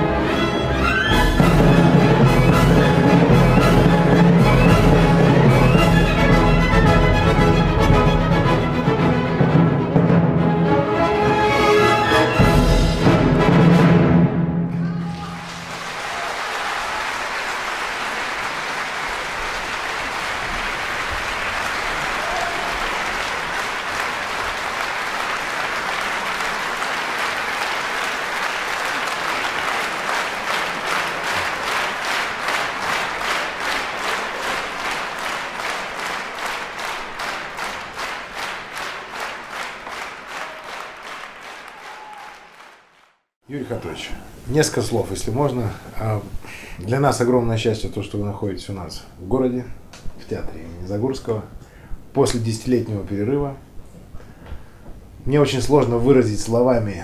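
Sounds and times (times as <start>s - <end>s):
audience applauding: 15.1s - 43.2s
rhythmic clapping in unison: 15.5s - 43.2s.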